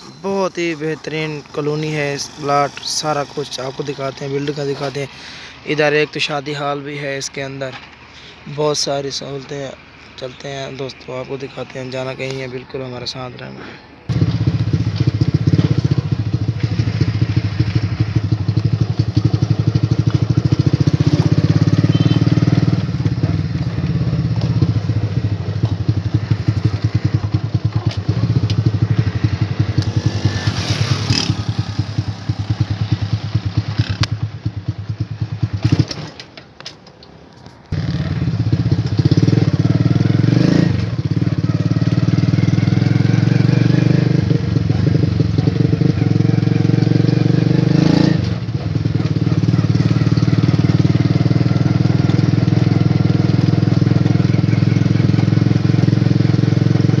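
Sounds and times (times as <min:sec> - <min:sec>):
motorcycle engine running: 0:14.1 - 0:36.0, 0:37.7 - 0:57.0.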